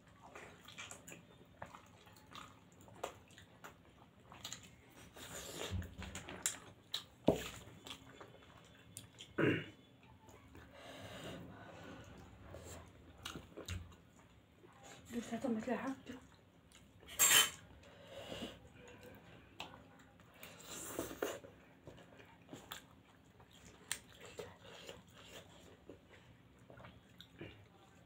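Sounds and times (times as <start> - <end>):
chewing and mouth smacks: 0.1 - 9.4, 13.2 - 14.8, 21.0 - 28.0.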